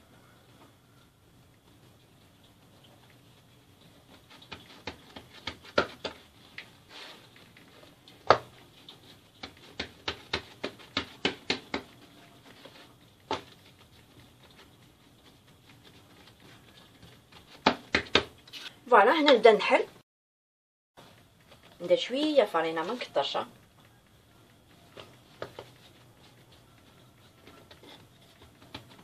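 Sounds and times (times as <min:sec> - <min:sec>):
hands patting dough on countertop: 0:04.0 - 0:18.5, 0:24.7 - 0:29.0.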